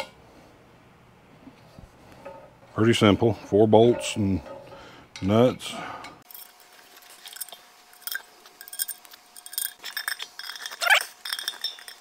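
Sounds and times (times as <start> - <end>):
metallic clinks of bolts and nuts: 6.3 - 12.0.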